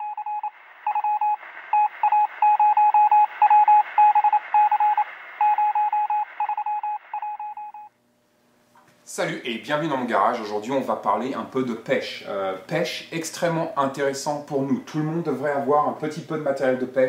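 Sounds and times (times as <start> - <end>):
radio static hiss: 0.0 - 7.4
morse code beeping: 0.0 - 7.9.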